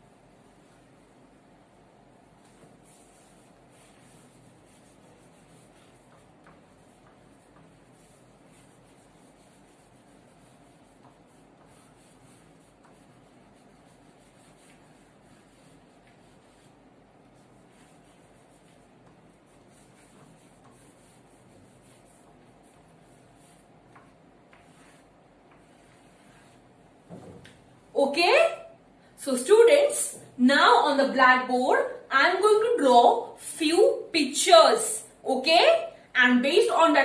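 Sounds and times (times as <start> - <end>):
low steady hum: 0.0 - 37.0
chalk scratching on blackboard: 0.3 - 28.8
light chalk taps: 5.7 - 13.4, 14.3 - 16.6, 17.7 - 22.8, 23.4 - 27.7.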